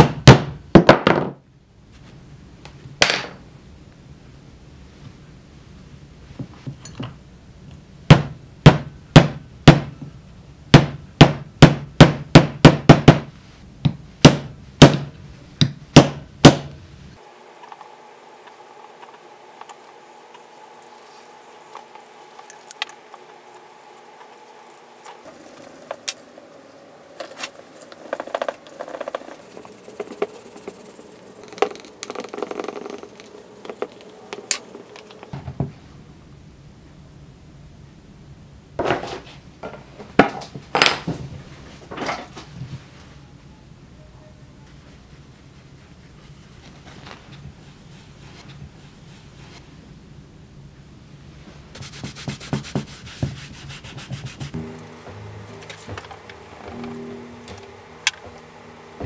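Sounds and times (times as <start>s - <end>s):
hammer striking: 13.9s - 16.8s.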